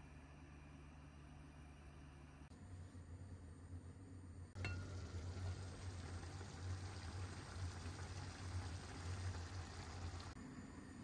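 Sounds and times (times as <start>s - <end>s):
lentils simmering in a pan: 4.6s - 10.4s.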